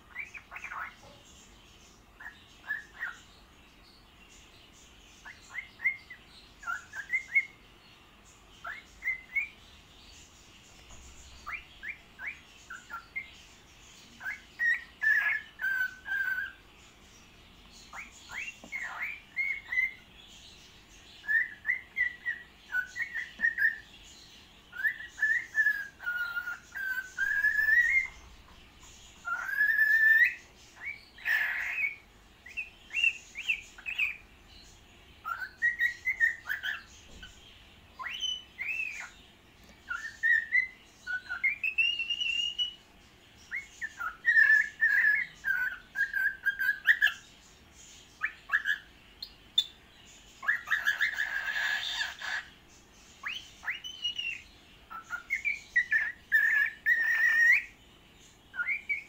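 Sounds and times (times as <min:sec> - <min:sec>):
cockatiel whistling: 0:00.1 - 0:01.0, 0:02.2 - 0:03.2, 0:05.2 - 0:07.6, 0:14.2 - 0:16.6, 0:17.9 - 0:20.0, 0:21.2 - 0:23.8, 0:24.7 - 0:28.2, 0:29.2 - 0:34.2, 0:35.2 - 0:36.9, 0:38.0 - 0:39.1, 0:39.9 - 0:42.8, 0:43.5 - 0:47.2, 0:48.2 - 0:48.9, 0:50.4 - 0:52.5, 0:53.2 - 0:57.7
harsh bird squawk: 0:29.2 - 0:32.0, 0:50.4 - 0:52.6.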